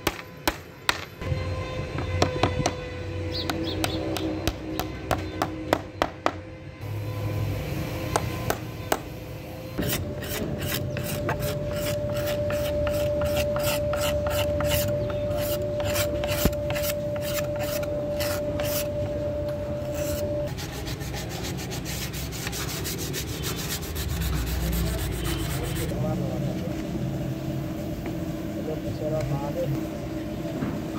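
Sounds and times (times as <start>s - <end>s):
metal blade scraping charred wood: 9.8s - 19.0s.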